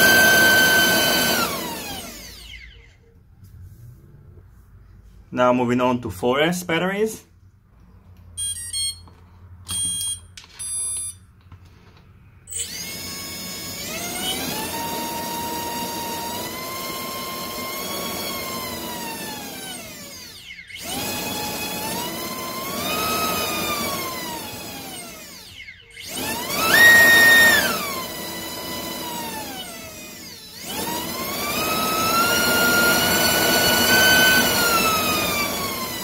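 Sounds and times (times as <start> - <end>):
brushless motor whining: 0.0 - 2.9, 12.6 - 36.0.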